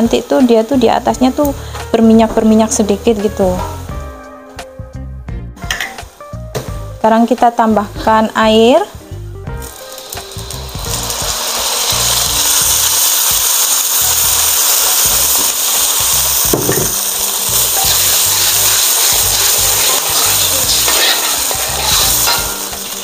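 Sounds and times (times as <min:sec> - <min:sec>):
water sizzling in hot oil: 0:09.6 - 0:23.0.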